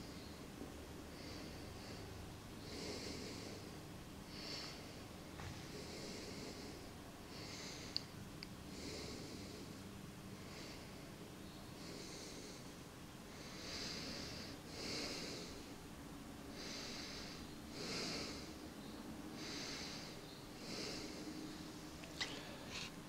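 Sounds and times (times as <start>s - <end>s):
faint room hum: 0.0s - 23.0s
person breathing: 1.1s - 8.1s, 8.7s - 15.9s, 16.5s - 23.0s.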